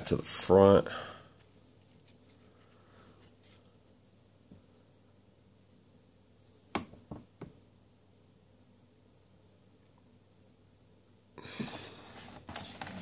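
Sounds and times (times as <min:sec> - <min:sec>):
cards rustling: 0:11.8 - 0:13.0.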